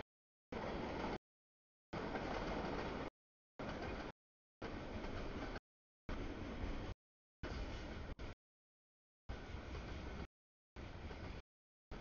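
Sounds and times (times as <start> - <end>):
freight train rolling past: 0.6 - 1.2, 2.0 - 8.3.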